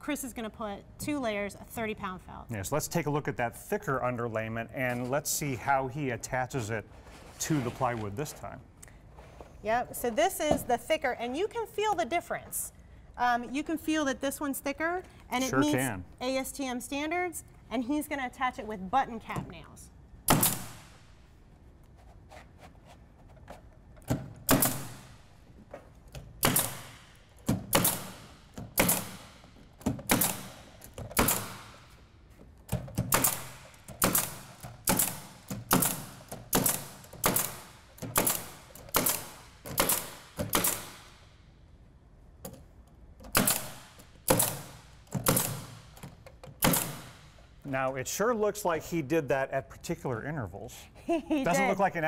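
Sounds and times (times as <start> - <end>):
pneumatic nailer shots: 20.3 - 21.0, 24.1 - 25.4, 26.2 - 32.0, 32.7 - 41.4, 43.3 - 47.5.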